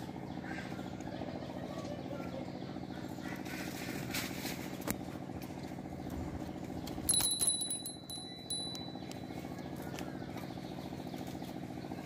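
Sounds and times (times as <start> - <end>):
low machine hum: 0.0 - 12.0
metallic ring: 7.1 - 9.2.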